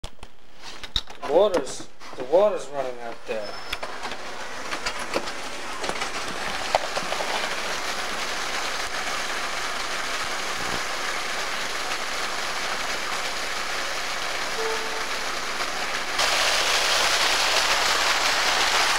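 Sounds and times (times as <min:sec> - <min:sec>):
water gushing from fire hydrant: 0:05.8 - 0:18.9.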